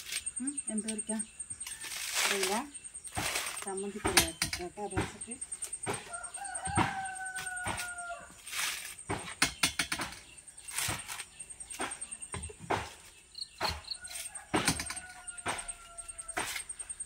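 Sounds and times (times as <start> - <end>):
coconut husk ripping: 1.6 - 3.7, 7.4 - 9.1, 10.6 - 11.4.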